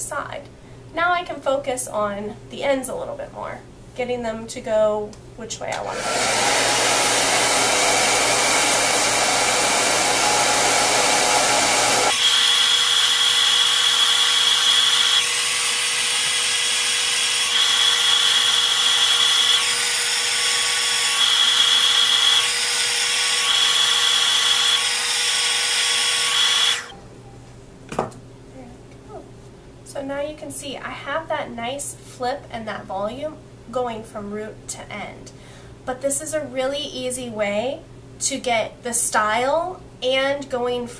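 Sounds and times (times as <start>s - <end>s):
hair dryer blowing: 5.7s - 27.0s.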